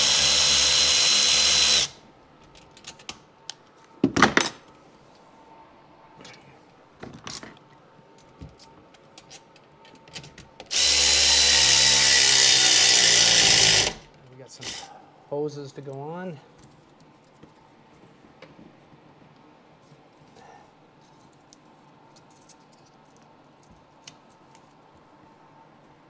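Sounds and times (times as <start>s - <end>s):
electric ratchet motor whine: 0.0s - 2.0s, 10.7s - 14.0s.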